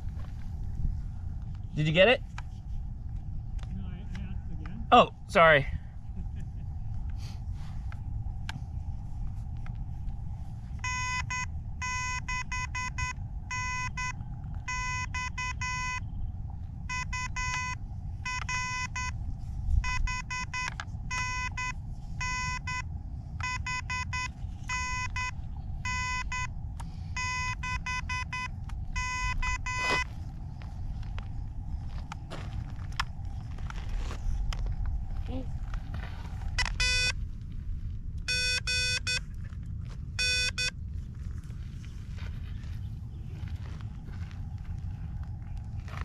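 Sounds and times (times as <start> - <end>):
morse code beeping: 10.8 - 16.1, 16.9 - 19.2, 19.8 - 26.5, 27.1 - 30.1, 36.6 - 37.2, 38.3 - 39.3, 40.2 - 40.8.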